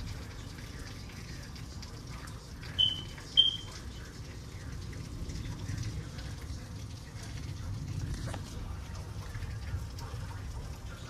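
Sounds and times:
heavy rain rumble: 0.0s - 11.0s
short high chirps: 2.8s - 3.7s.

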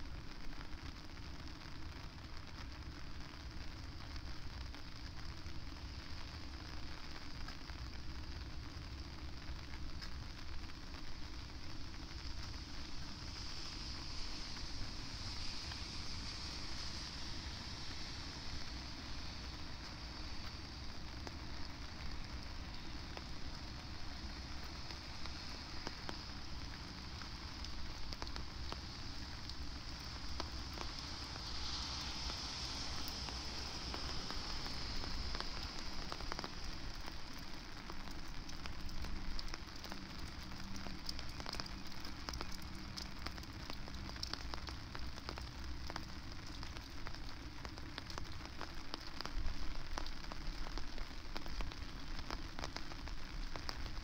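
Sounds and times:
low wind rumble: 0.0s - 41.2s
rain drops ticking: 0.0s - 54.0s.

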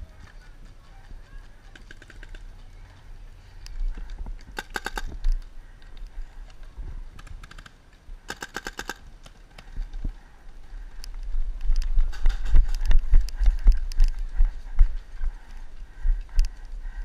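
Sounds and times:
paintball markers firing: 1.6s - 2.7s, 4.4s - 6.0s, 7.2s - 9.4s.

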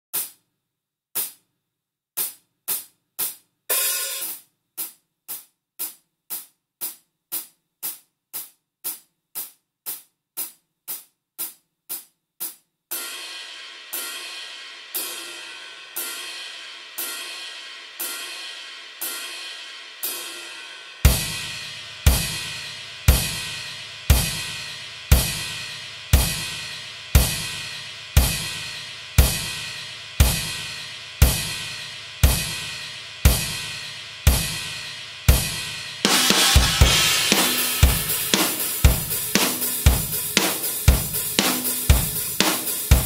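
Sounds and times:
hi-hat ticks: 0.1s - 0.5s, 2.2s - 13.0s, 21.1s - 43.0s
full drum kit playing: 2.2s - 43.0s
cymbal crashes: 13.0s - 43.0s
kick drum hit: 35.3s - 42.2s.

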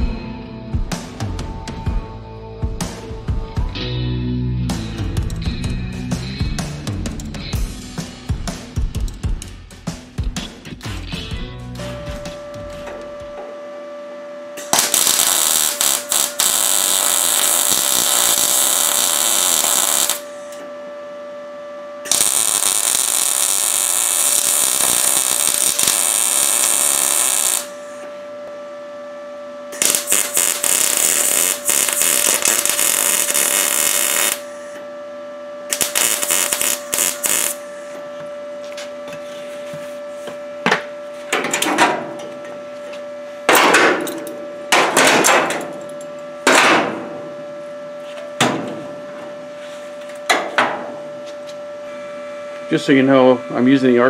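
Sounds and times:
steady hum: 0.0s - 54.0s
welder arc noise: 14.6s - 20.7s, 22.0s - 28.2s, 29.7s - 34.9s, 35.6s - 38.0s.

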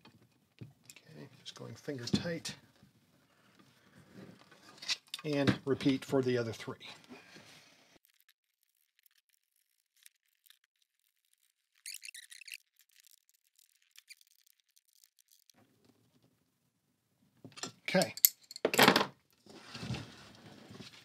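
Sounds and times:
metal nuts rattling: 17.6s - 18.9s.

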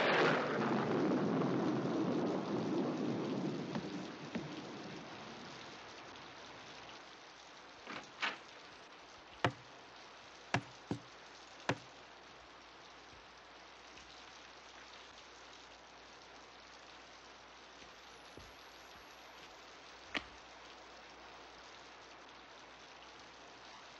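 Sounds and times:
thunder rolling: 0.0s - 5.8s
steady rain: 0.0s - 23.9s
sharp knocks: 9.4s - 9.7s, 10.6s - 11.1s.

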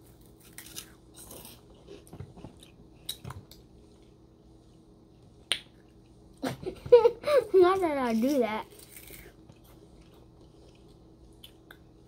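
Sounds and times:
crunching and chewing snacks: 0.0s - 4.2s, 8.0s - 12.0s.

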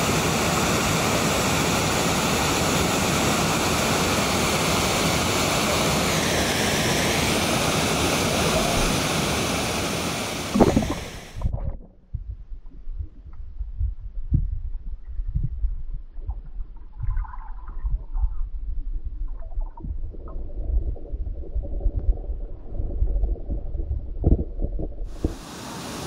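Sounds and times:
flowing river water: 0.0s - 11.8s, 25.1s - 26.0s
splash into water: 10.5s - 11.8s
dull underwater knocks: 10.5s - 14.6s, 23.5s - 25.4s.

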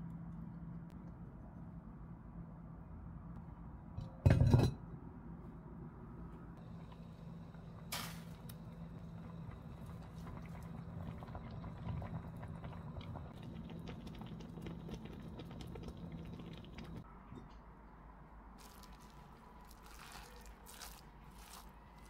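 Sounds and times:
broth simmering with bubbling pops: 6.6s - 17.1s.

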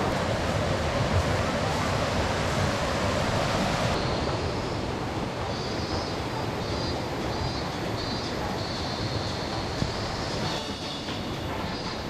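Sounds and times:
river rushing over rocks: 0.0s - 4.8s.

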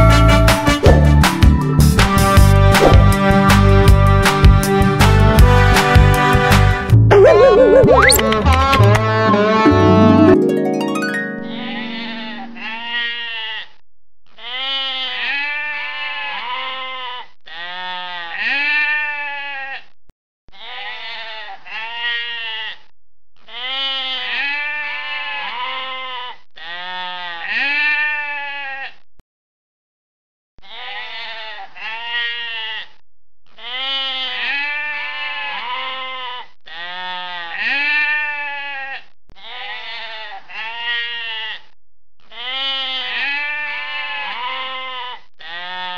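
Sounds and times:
lambs bleating: 11.7s - 13.7s, 14.4s - 19.8s, 20.6s - 22.8s, 23.5s - 29.0s, 30.6s - 32.9s, 33.6s - 45.9s.

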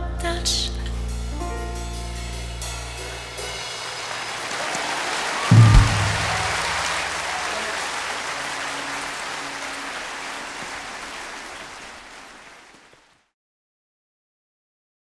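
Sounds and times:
band's last notes: 2.4s - 11.9s
audience applause: 3.2s - 13.3s.

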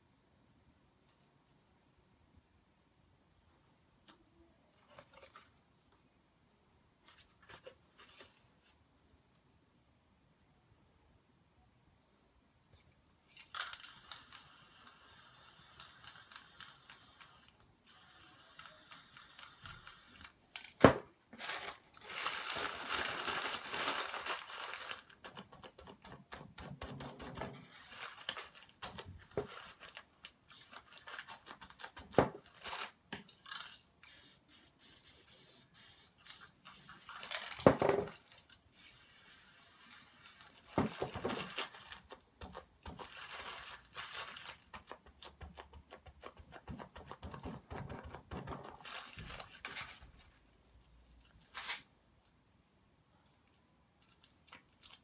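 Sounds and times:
paper rustling: 4.7s - 5.6s, 7.0s - 8.8s, 21.3s - 26.0s, 27.2s - 33.8s, 37.1s - 38.6s, 40.5s - 51.9s
aerosol spray can hissing: 13.8s - 20.3s, 30.5s - 30.8s, 34.0s - 37.2s, 38.7s - 40.6s.

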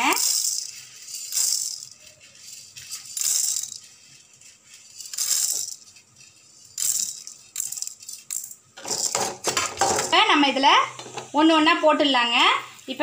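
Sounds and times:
dry lentils rattling in metal pan: 0.0s - 10.3s.

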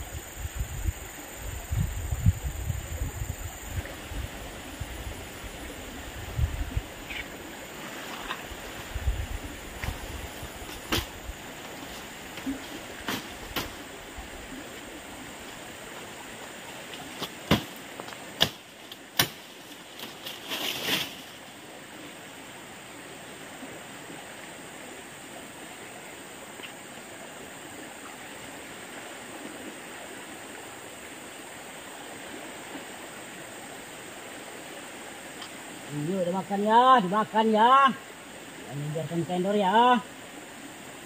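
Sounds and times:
rushing water: 0.0s - 41.0s
sharp knocks: 17.2s - 17.8s
short noisy rustle: 20.0s - 21.4s.

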